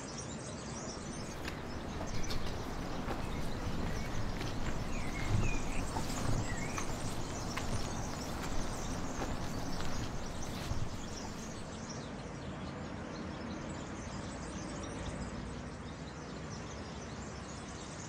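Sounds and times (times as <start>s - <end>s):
steady background hiss: 1.1s - 11.7s.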